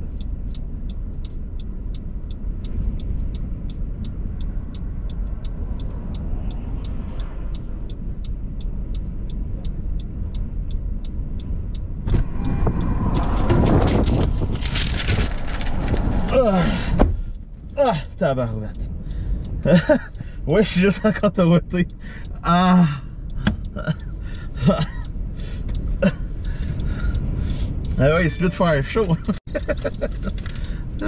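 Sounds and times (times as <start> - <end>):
wind rumble on car: 0.0 - 31.0
fast regular ticking: 0.1 - 12.1, 17.2 - 31.0
rush of wind with clattering: 11.6 - 17.8.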